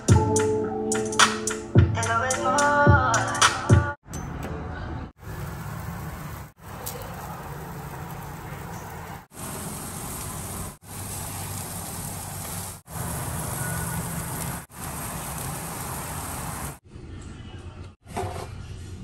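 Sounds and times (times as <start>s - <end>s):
chicken sizzling on a grill: 5.2s - 16.8s.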